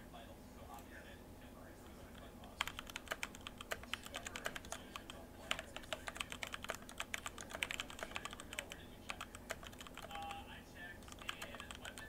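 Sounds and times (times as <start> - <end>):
mechanical keyboard keystroke clicks: 2.6 - 10.2, 11.0 - 12.0.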